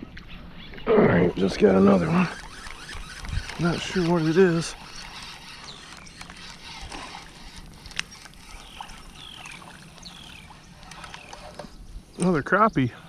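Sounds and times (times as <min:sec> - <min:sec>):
bird chirping: 0:00.0 - 0:13.0
water splashing: 0:01.3 - 0:11.8
fishing reel: 0:01.5 - 0:11.7.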